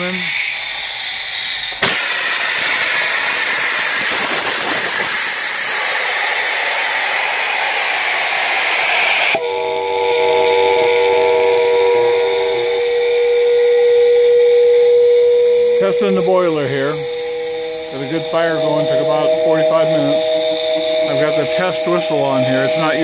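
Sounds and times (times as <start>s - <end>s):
steam hissing from valve: 0.0s - 9.4s
steady multi-tone hum: 9.3s - 23.0s.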